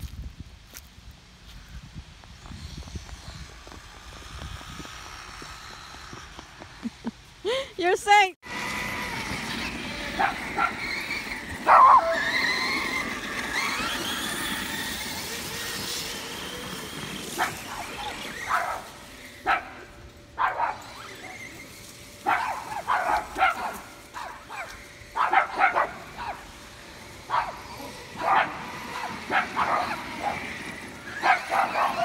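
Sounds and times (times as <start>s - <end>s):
rc car motors whining: 2.3s - 32.0s
dog barking: 11.7s - 12.2s, 19.5s - 19.7s, 20.4s - 20.8s, 22.2s - 26.4s, 27.3s - 27.6s, 28.2s - 30.4s, 31.2s - 32.0s.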